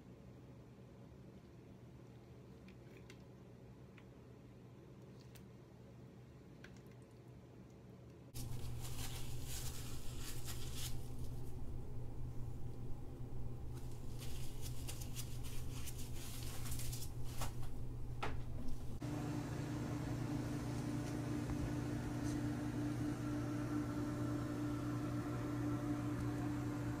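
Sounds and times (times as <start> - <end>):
low room hum: 0.0 - 27.0
steady mechanical hum: 0.0 - 27.0.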